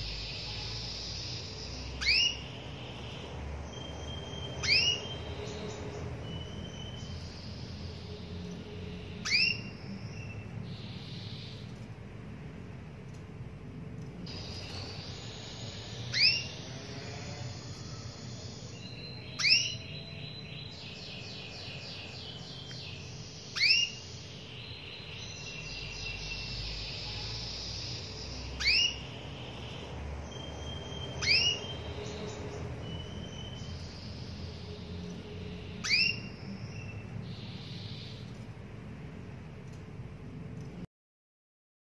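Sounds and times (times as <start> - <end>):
canary rising call notes: 0.0 - 7.6, 9.0 - 9.8, 14.3 - 19.9, 23.3 - 24.2, 25.7 - 34.7, 35.7 - 38.4
high twittering: 0.0 - 11.8, 14.3 - 38.4.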